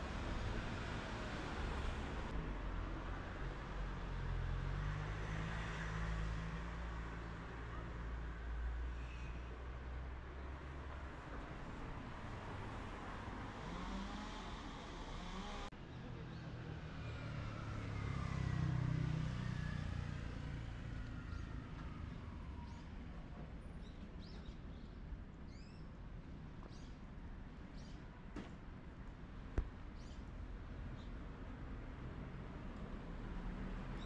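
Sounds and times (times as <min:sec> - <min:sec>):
car passing with whine: 0:12.5 - 0:15.7, 0:16.7 - 0:22.7
small birds chirping: 0:23.8 - 0:26.0, 0:26.6 - 0:27.0, 0:27.7 - 0:28.1, 0:29.9 - 0:31.2.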